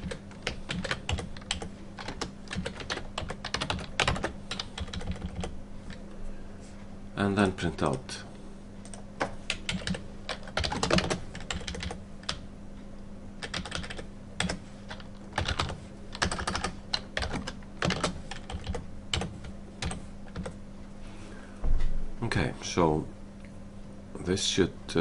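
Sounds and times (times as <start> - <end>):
keyboard typing clicks: 0.0 - 6.0, 13.4 - 20.6.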